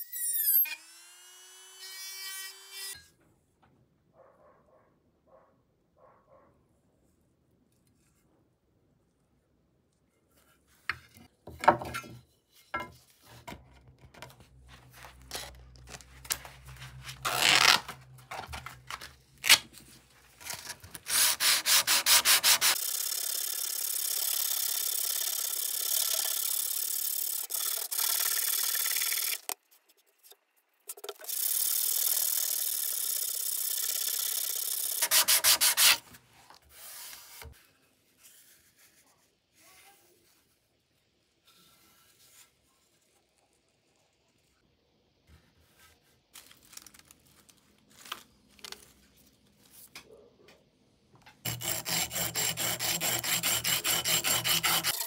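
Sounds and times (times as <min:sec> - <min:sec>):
abrasive sanding: 0:21.1 - 0:22.8, 0:51.5 - 0:55.0.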